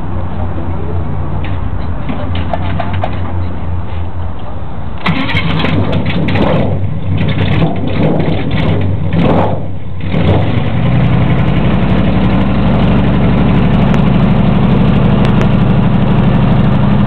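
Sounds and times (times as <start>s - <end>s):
airboat engine running: 11.0s - 17.0s.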